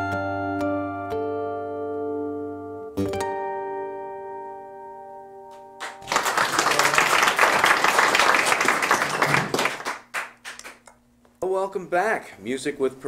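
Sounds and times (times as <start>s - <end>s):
acoustic guitar chord ringing: 0.1s - 6.1s
audience applause: 5.8s - 10.8s.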